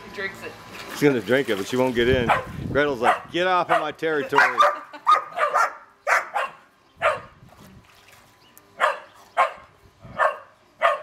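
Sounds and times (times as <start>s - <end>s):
dog barking: 2.3s - 7.3s, 8.8s - 11.0s.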